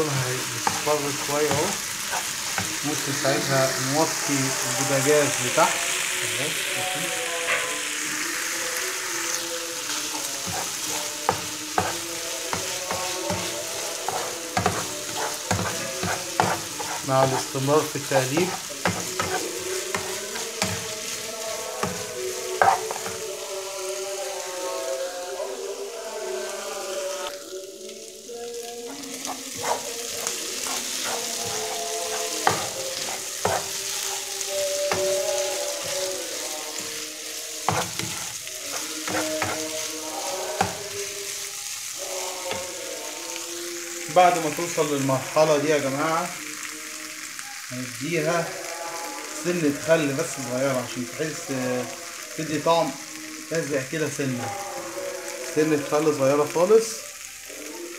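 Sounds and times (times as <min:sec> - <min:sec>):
food sizzling in frying pan: 0:00.0 - 0:57.9
spatula stirring: 0:00.5 - 0:03.0, 0:09.8 - 0:23.4, 0:28.6 - 0:42.9
utensil scraping pan: 0:12.6 - 0:17.6, 0:18.3 - 0:21.0, 0:22.6 - 0:23.2, 0:29.2 - 0:34.3.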